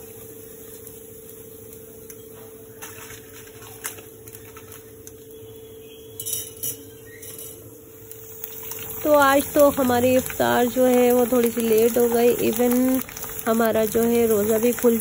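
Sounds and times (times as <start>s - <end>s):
metal utensils clinking: 6.2s - 7.6s.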